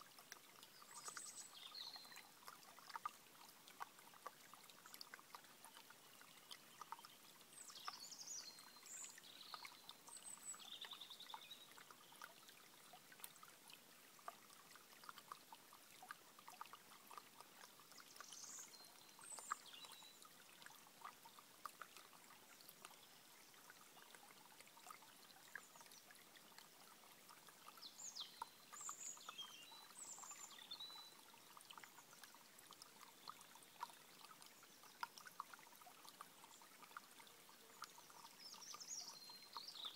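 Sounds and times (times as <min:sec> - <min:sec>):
stream trickling over stones: 0:00.0 - 0:39.9
songbird singing: 0:00.6 - 0:02.3, 0:04.9 - 0:12.4, 0:17.9 - 0:20.3, 0:27.7 - 0:32.4, 0:36.4 - 0:39.9.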